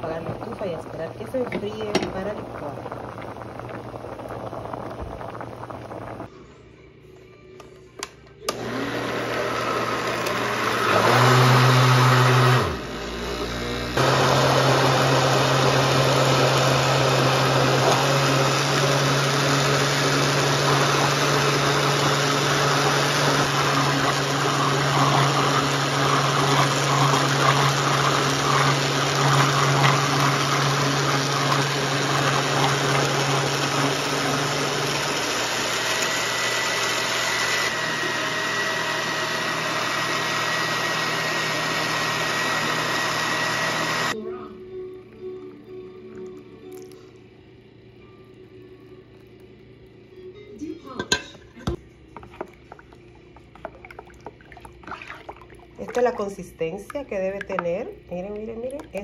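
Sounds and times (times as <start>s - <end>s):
blender motor running: 8.5s - 44.2s
thick mixture churning: 14.3s - 44.2s, 51.9s - 57.5s.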